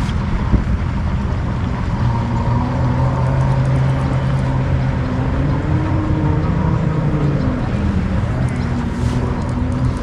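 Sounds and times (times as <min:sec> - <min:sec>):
motorboat engine running: 0:00.0 - 0:10.0.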